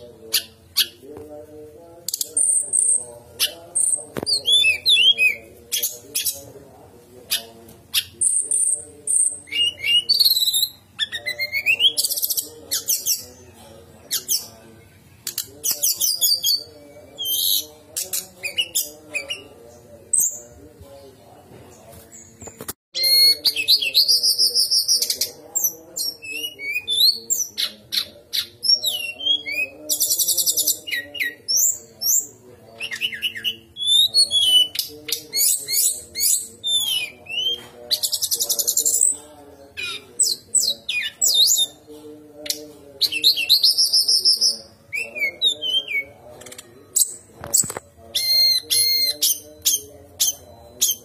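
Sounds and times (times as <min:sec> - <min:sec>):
bird singing trills and whistles: 0:07.9 - 0:13.3, 0:22.1 - 0:41.8, 0:42.5 - 0:51.0.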